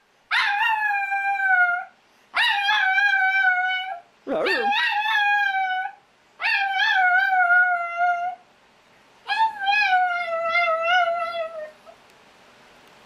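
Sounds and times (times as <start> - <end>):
dog howling: 0.3 - 8.4, 9.3 - 12.0.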